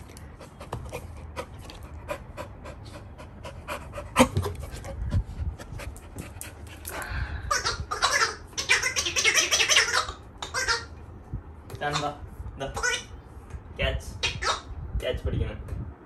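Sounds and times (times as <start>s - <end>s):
puppy panting: 0.0s - 7.0s.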